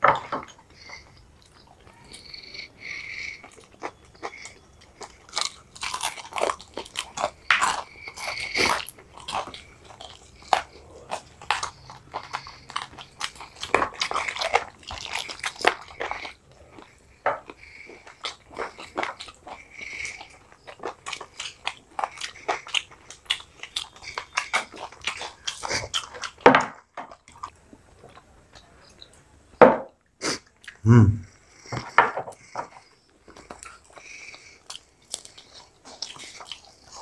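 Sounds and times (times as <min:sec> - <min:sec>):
people chewing food: 0:00.0 - 0:37.0
knock: 0:29.6 - 0:29.9.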